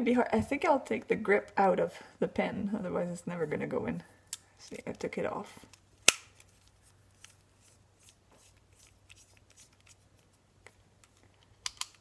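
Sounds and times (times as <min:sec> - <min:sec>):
fingers handling plastic pen: 0:05.7 - 0:12.0.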